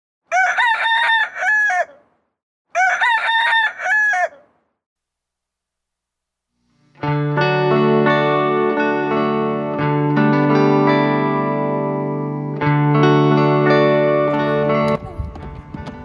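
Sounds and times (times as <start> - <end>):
rooster crowing: 0.3 - 2.1, 2.7 - 4.6
guitar music: 6.6 - 16.0.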